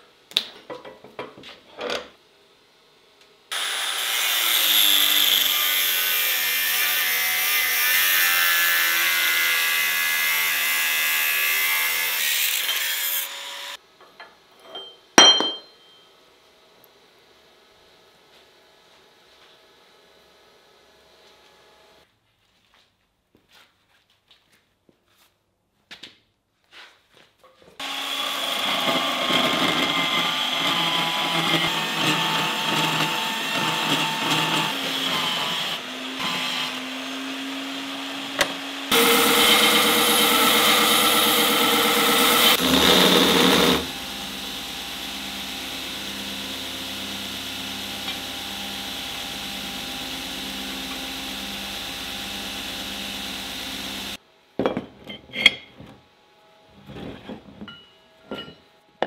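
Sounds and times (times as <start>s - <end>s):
belt grinder humming: 27.8s - 36.8s, 38.4s - 54.2s.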